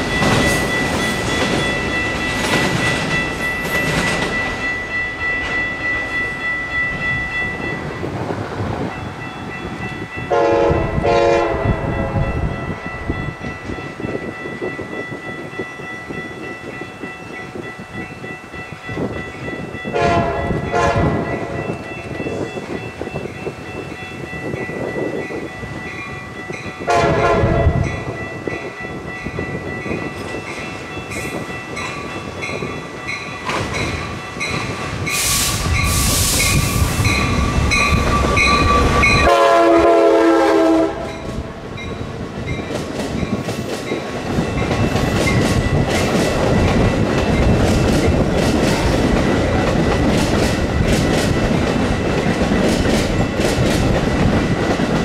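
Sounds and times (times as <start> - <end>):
train wheels clacking over rails: 0.0 - 6.2, 29.4 - 41.4, 42.1 - 55.0
bell ringing: 0.0 - 8.1, 35.8 - 39.6
train horn blasts: 10.3 - 12.7, 19.9 - 21.6, 26.8 - 28.1, 38.0 - 41.3.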